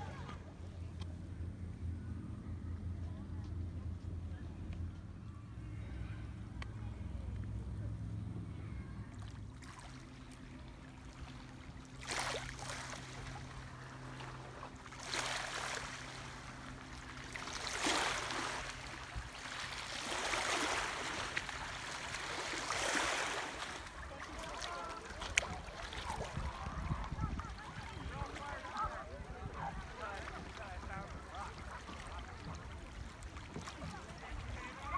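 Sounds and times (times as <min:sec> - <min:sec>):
faint low hum: 0:00.0 - 0:34.9
lake waves washing on shore: 0:09.5 - 0:34.9.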